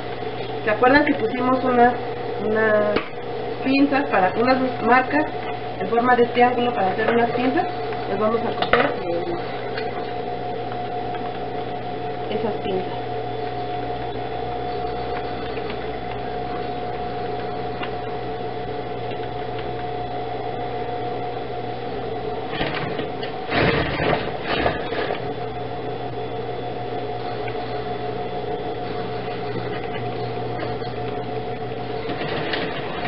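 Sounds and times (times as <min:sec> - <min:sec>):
sewing machine humming: 0:22.3 - 0:26.1, 0:26.8 - 0:33.0.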